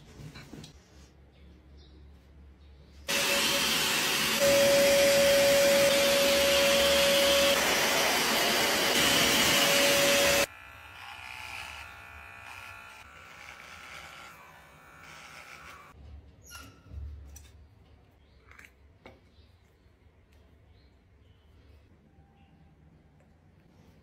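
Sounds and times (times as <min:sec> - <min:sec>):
grooming machine air rush and whine: 0:03.1 - 0:13.0.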